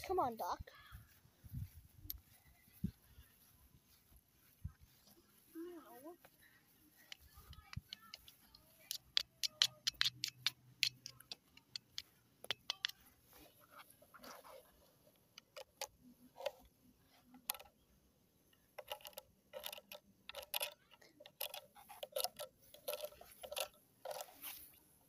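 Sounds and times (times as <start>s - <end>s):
faint clicks and taps: 6.2s - 17.8s.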